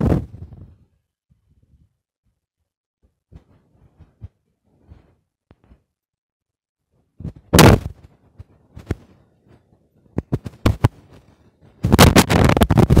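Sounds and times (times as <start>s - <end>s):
rubbing on phone microphone: 3.0s - 5.9s, 7.2s - 13.0s
bump on phone microphone: 7.2s - 8.1s, 11.8s - 13.0s.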